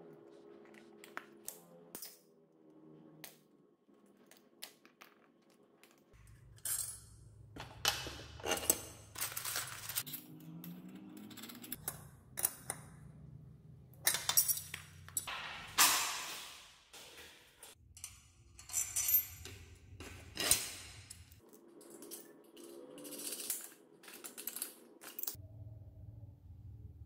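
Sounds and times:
metal washers clinking in plastic tub: 6.6s - 10.1s, 14.0s - 15.3s, 21.8s - 25.4s.

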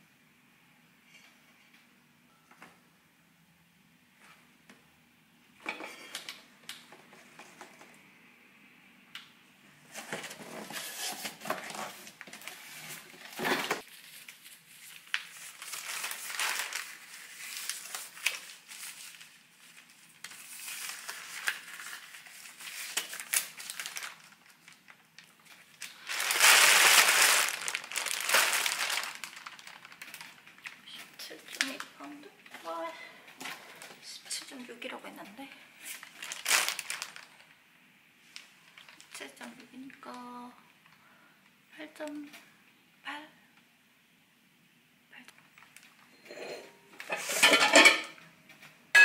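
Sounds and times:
plastic bag crinkling: 13.3s - 32.6s, 35.8s - 37.6s, 38.4s - 39.5s.

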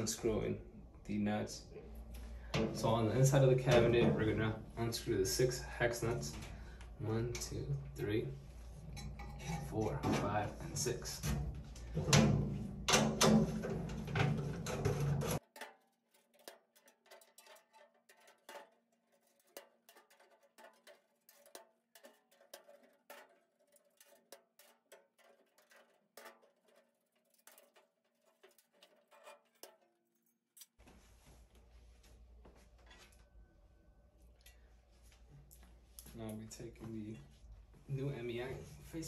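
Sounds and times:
metal clinking and scraping: 1.7s - 30.8s.

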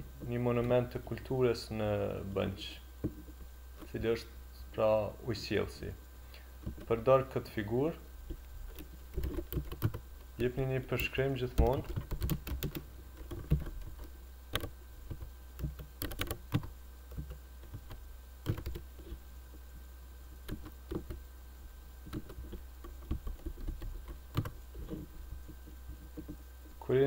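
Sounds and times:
low steady hum: 0.0s - 27.0s
computer keyboard typing: 9.2s - 10.0s, 11.0s - 18.9s, 20.5s - 21.2s, 22.1s - 24.6s.

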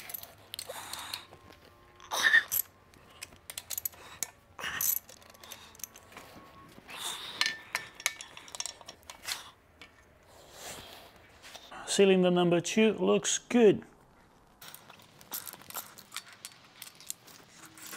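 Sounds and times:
metal parts clattering: 0.0s - 1.6s, 2.2s - 6.2s, 7.3s - 10.0s, 14.6s - 17.9s.

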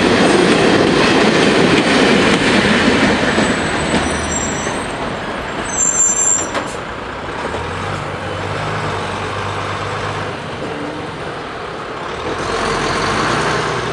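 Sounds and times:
tyre and road noise: 0.0s - 13.9s
lorry diesel engine hum: 6.8s - 13.9s.

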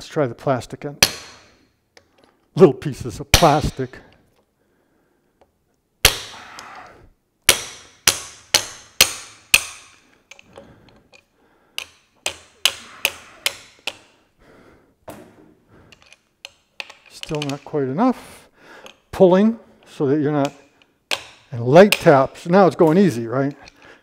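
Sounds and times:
hammer tapping metal socket: 7.5s - 11.2s, 11.8s - 14.1s, 15.9s - 17.7s, 20.4s - 22.2s.

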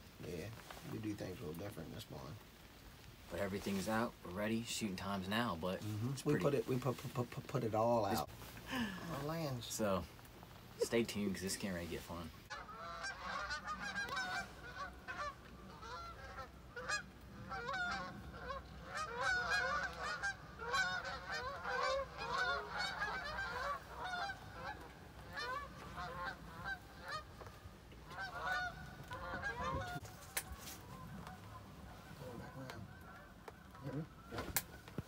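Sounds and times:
geese honking: 10.8s - 35.0s.

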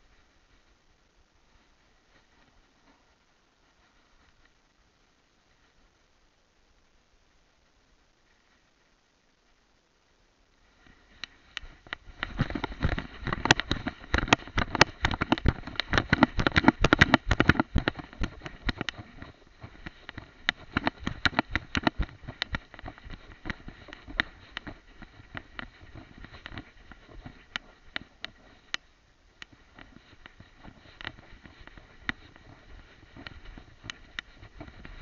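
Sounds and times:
fur and grass rubbing on microphone: 1.4s - 4.6s, 10.6s - 28.8s, 29.5s - 35.0s.

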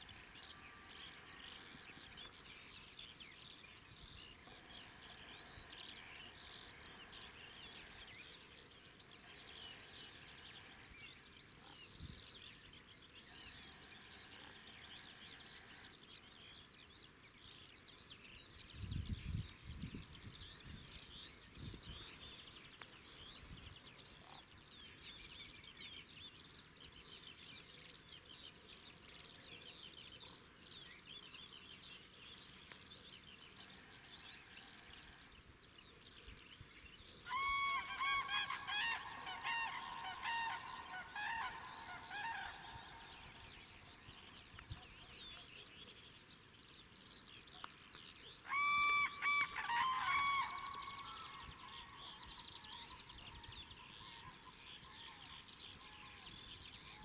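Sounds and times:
large birds calling repeatedly: 0.0s - 17.7s, 37.1s - 57.0s
chorus of small songbirds: 0.0s - 57.0s.

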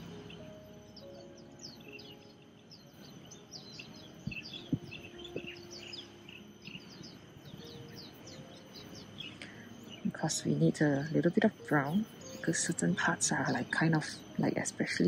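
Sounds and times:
birds chirping: 0.0s - 15.0s
faint high whine: 0.0s - 15.0s.

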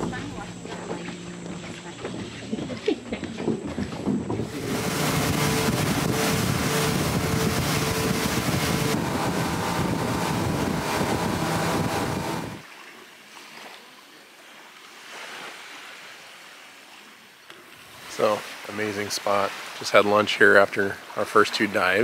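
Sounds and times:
motorboat engine: 0.0s - 12.6s
wind buffeting microphone: 0.0s - 12.6s
rushing water spray: 4.4s - 12.6s.

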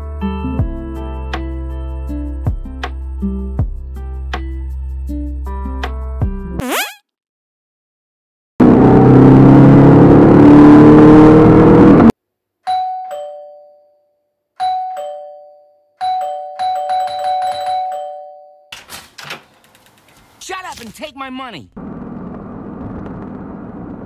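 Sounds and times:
car engine revving: 8.6s - 12.1s
two-tone doorbell: 12.7s - 18.7s
front door clicks: 18.8s - 20.1s.

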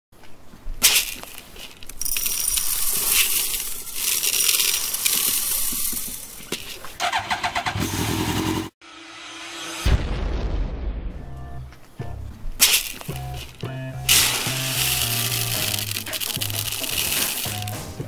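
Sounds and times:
plastic pellets rattling into metal: 0.8s - 7.0s, 12.6s - 18.0s
engine cranked by starter: 7.0s - 8.7s.

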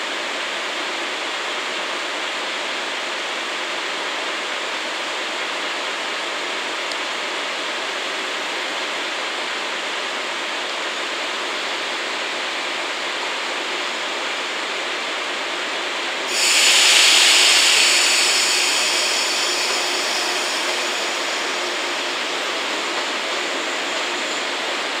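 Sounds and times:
electric train on rails: 0.0s - 25.0s
wheel squeal: 16.3s - 24.9s.

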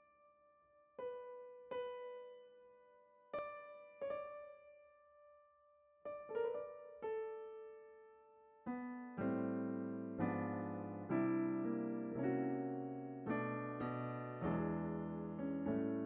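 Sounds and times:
slow solo piano: 0.0s - 16.0s.

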